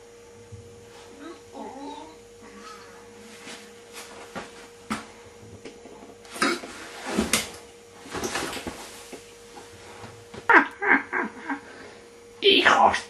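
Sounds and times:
faint steady hum: 0:00.0 - 0:13.0
clattering and rustling: 0:06.7 - 0:09.2.

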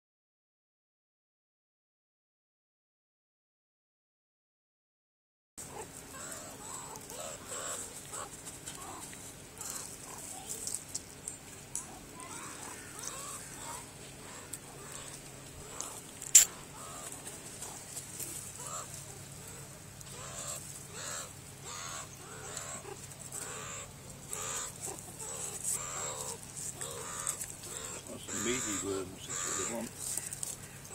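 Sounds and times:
meerkats calling: 0:05.6 - 0:30.9
sharp click: 0:16.2 - 0:16.5.

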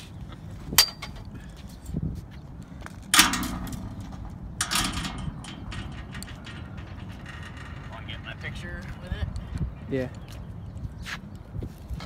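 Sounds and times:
metal handle clanking on concrete: 0:00.8 - 0:01.3, 0:03.1 - 0:08.7.

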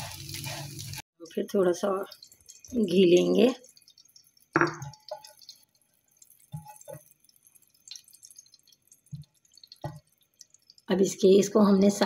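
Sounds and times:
spatula knocking on frying pan: 0:04.6 - 0:05.5, 0:06.4 - 0:07.2, 0:09.1 - 0:10.1.

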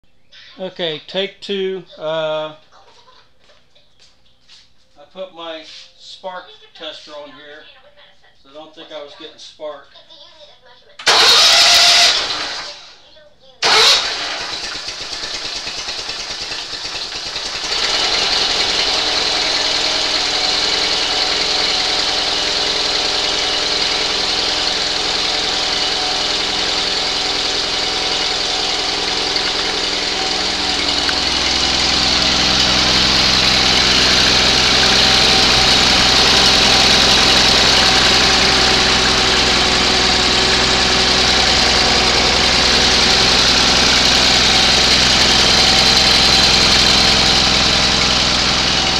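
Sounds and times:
flat-twin engine running steadily: 0:13.7 - 0:48.9.

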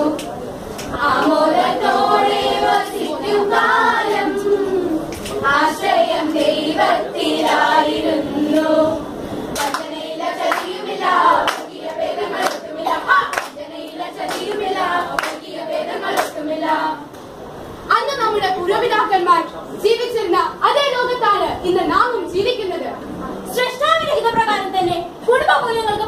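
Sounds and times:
young voices singing in chorus: 0:00.0 - 0:17.1
hand claps: 0:09.6 - 0:09.9, 0:10.5 - 0:10.8, 0:11.4 - 0:13.6, 0:15.2 - 0:15.5.

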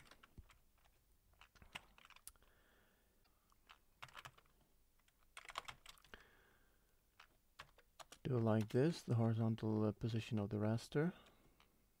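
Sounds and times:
keyboard typing: 0:00.0 - 0:02.5, 0:03.3 - 0:06.2, 0:07.1 - 0:09.5.

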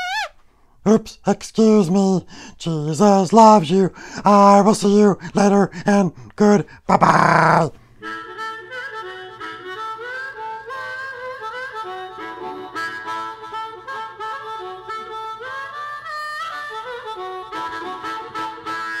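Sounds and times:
instrumental melody with sliding notes: 0:08.0 - 0:19.0.

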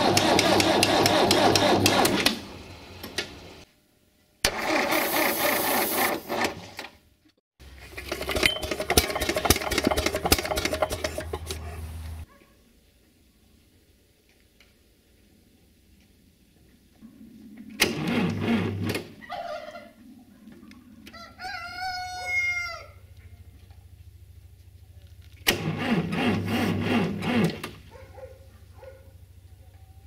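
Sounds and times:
diesel engine cranking and firing: 0:00.0 - 0:03.6, 0:04.4 - 0:06.8, 0:07.8 - 0:12.1, 0:17.8 - 0:19.2, 0:25.2 - 0:28.0
rooster crowing: 0:21.0 - 0:23.1.

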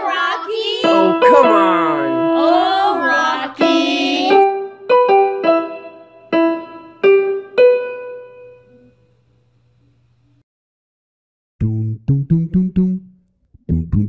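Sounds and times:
keyboard playing single notes: 0:00.8 - 0:09.0.

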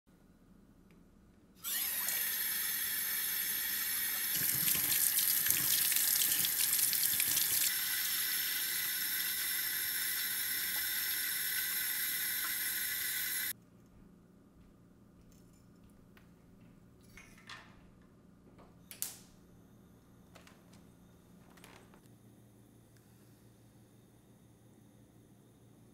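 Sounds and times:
tap water running into pot: 0:04.1 - 0:07.8, 0:08.4 - 0:13.5.

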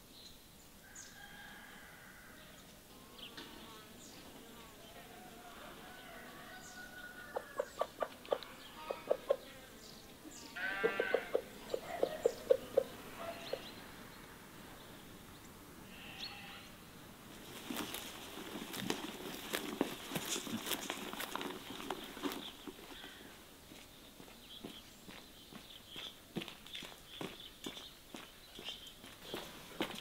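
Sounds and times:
hens clucking: 0:07.1 - 0:09.6, 0:10.6 - 0:13.8
goat bleating: 0:10.5 - 0:11.5, 0:15.9 - 0:16.7
rustling clicking steps: 0:17.4 - 0:23.2.

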